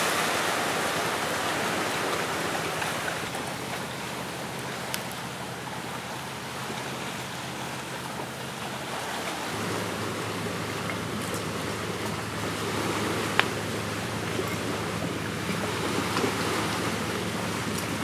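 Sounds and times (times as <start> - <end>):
sea surf washing on shore: 0.0 - 18.0
wood fire crackles: 4.6 - 5.3.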